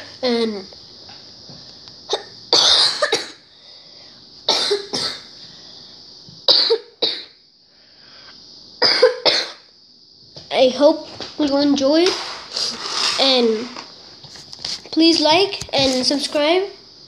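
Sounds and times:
person coughing: 2.1 - 3.4, 4.5 - 5.3, 6.5 - 7.3, 8.8 - 9.6.

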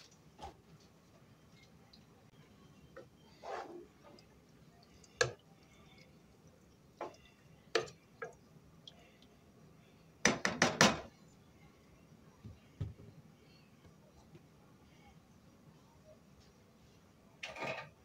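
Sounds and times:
spoon stirring stew in pot: 2.8 - 8.4.

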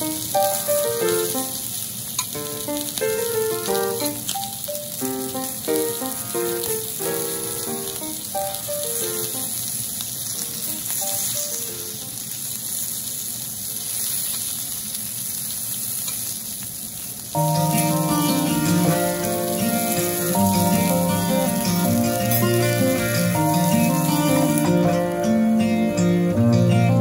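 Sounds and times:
steak sizzling on griddle: 0.0 - 27.0
light background music: 17.4 - 27.0.

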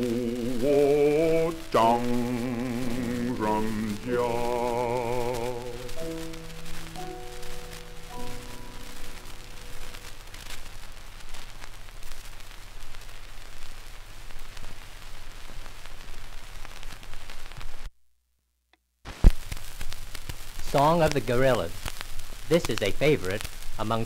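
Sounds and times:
record hiss and crackle: 0.0 - 24.0.

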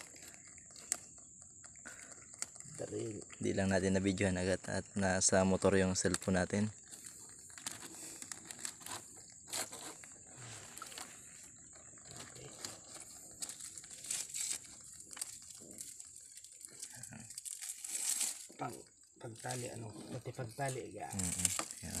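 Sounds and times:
plastic rustling and crinkling: 6.0 - 22.0.

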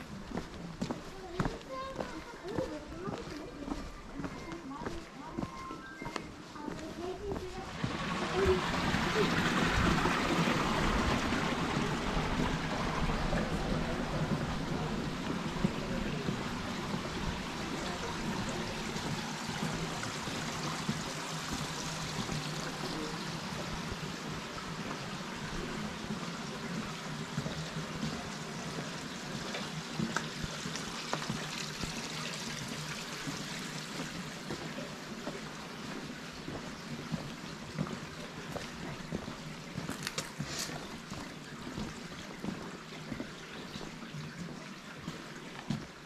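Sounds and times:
flowing water rushing: 0.0 - 46.0.

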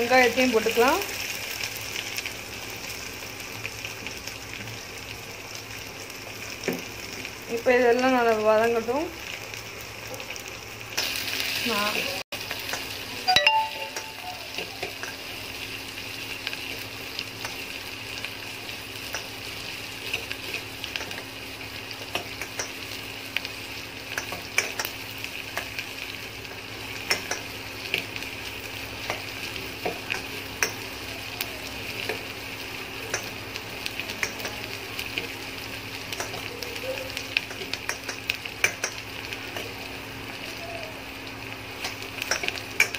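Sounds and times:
onions sizzling in hot oil: 0.0 - 42.9.

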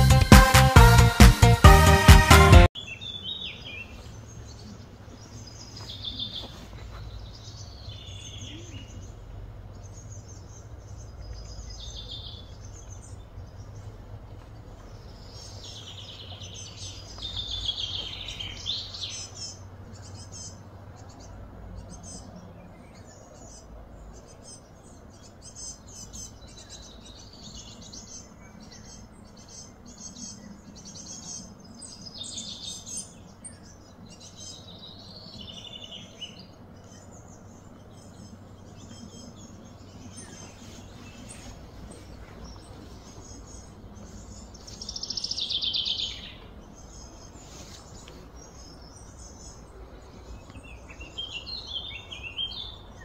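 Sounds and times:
birds chirping: 0.0 - 53.0
low steady rumble: 7.0 - 32.1.

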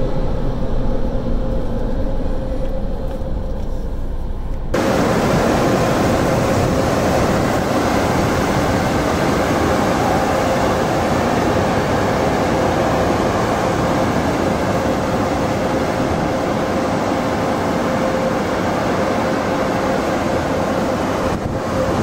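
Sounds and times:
air-dryer blowers rushing: 4.8 - 22.0.

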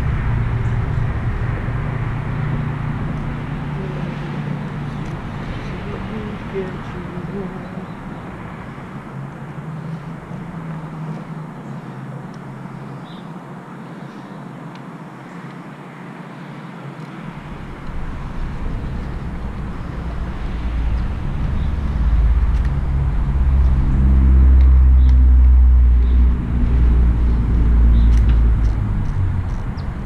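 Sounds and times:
vehicle engine passing by: 0.0 - 12.9, 16.4 - 30.0.

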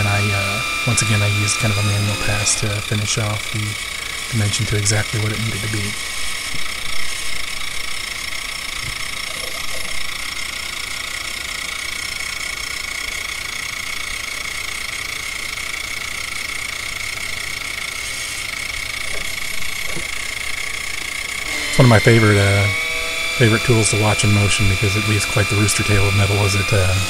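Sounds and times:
milling machine cutting aluminium: 0.0 - 7.8, 18.5 - 27.0
high whine: 0.0 - 11.0, 17.2 - 27.0.

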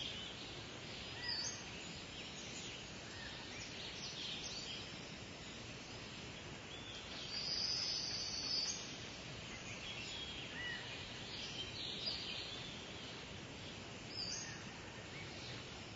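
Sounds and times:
birds chirping: 0.0 - 15.9
steady background hiss: 0.0 - 15.9.

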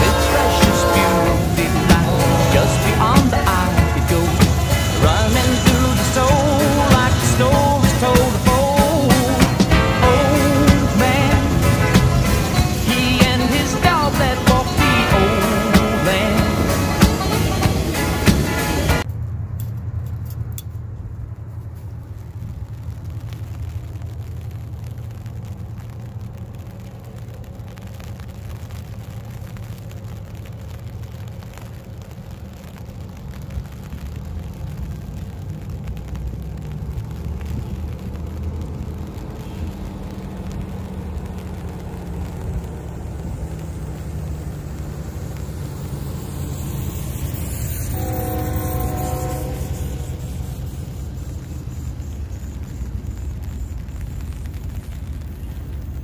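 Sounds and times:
locomotive air horn: 0.0 - 8.1, 9.1 - 19.0, 46.9 - 51.4
diesel locomotives rumbling: 0.0 - 29.6, 30.4 - 56.0.

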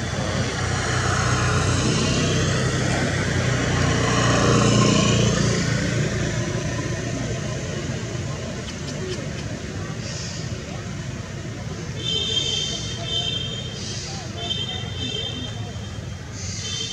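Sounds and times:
vehicle passing by: 0.0 - 11.3.

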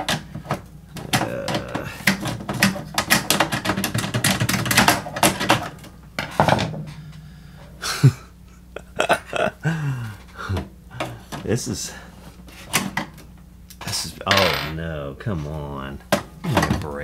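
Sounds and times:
plastic and metal tools clattering: 0.0 - 7.0
knocks: 0.0 - 7.7.

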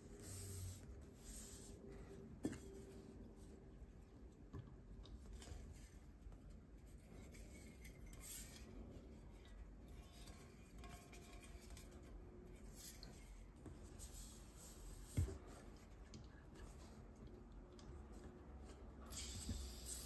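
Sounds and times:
gas hiss: 19.1 - 20.0.

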